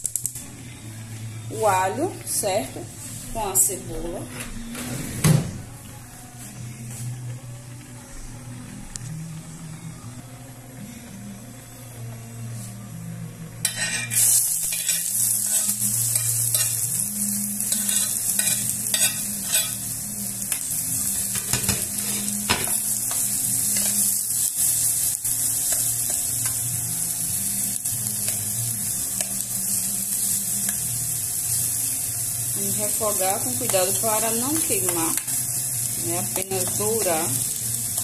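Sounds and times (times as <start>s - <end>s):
onion and garlic sizzling in oil: 0.9s - 4.3s, 6.4s - 38.0s
metal spoon scraping a pot: 13.6s - 16.8s, 17.7s - 19.8s.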